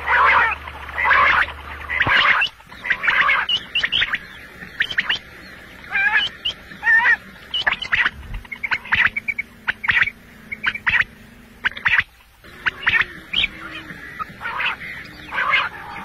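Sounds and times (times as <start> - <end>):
quail chirping: 0.0 - 16.0.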